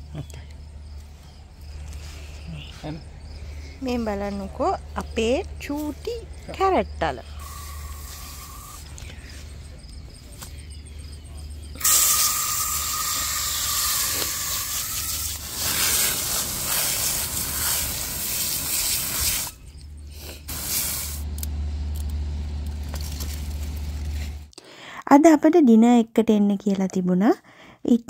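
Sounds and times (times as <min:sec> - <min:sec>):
loud hissing noise: 0:07.2 - 0:09.6, 0:11.7 - 0:21.5.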